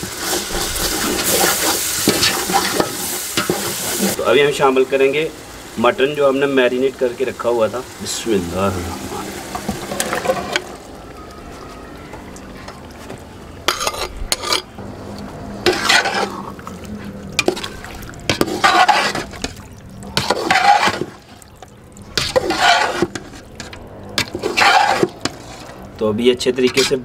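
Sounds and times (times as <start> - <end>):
metal spoon stirring wet meat in pot: 12.4 - 27.0.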